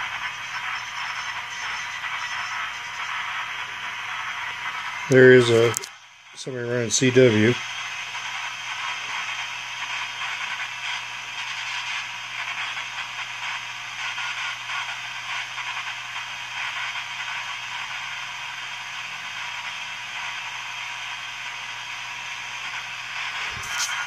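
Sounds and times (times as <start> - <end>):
radio static and hiss: 0.0 - 24.0.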